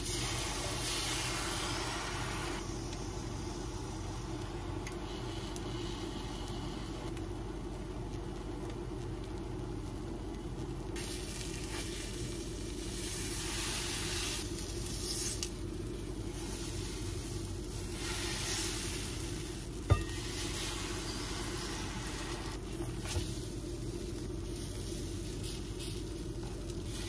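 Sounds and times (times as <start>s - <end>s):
food sizzling in a pan: 0.0s - 4.4s, 11.0s - 27.0s
steady low hum: 0.0s - 27.0s.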